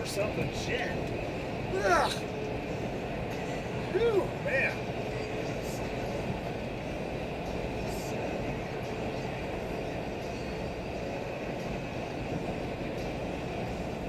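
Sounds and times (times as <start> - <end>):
truck cab road rumble: 0.0 - 14.0.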